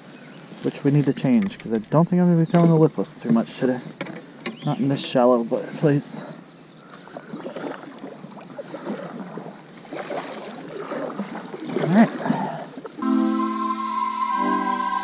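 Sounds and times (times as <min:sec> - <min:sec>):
water lapping against boat hull: 0:06.8 - 0:13.0
brief loud rising sound: 0:13.0 - 0:15.0.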